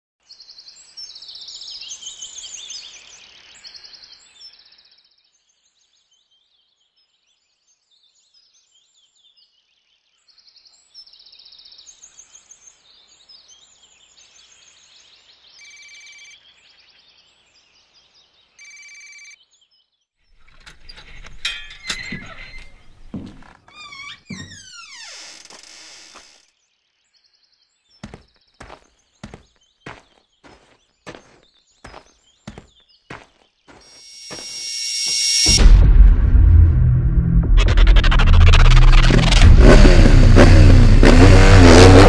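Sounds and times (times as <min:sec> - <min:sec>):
birds chirping and trilling: 0:20.4 - 0:26.4, 0:27.6 - 0:35.1
wooden door rattling and creaking: 0:20.4 - 0:26.4
short steady ringing tones: 0:33.9 - 0:35.6.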